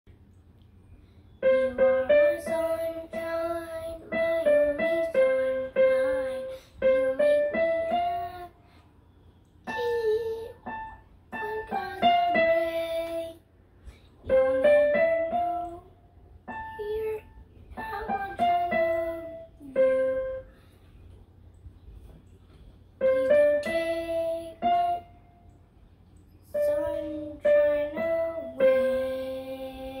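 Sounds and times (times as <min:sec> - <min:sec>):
child singing: 0:01.4 - 0:08.6, 0:09.6 - 0:13.4, 0:14.3 - 0:20.4, 0:23.0 - 0:25.2, 0:26.5 - 0:30.0.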